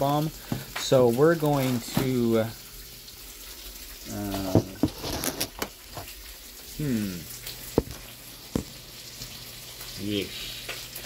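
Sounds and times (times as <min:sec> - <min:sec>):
man's wordless vocal sounds: 0:06.8 - 0:07.3.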